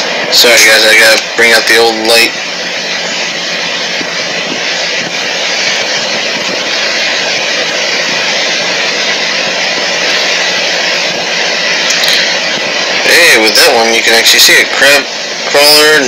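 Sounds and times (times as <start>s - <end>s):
loud steady rushing hiss: 0.0s - 16.0s.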